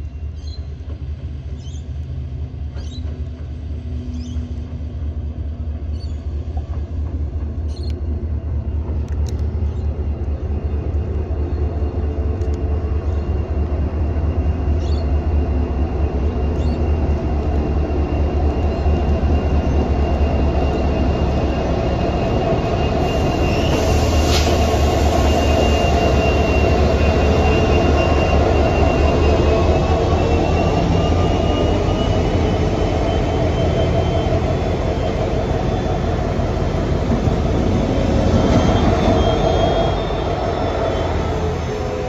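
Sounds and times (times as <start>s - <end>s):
diesel locomotive engine rumble: 0.0s - 42.0s
high-pitched squeal: 14.4s - 42.0s.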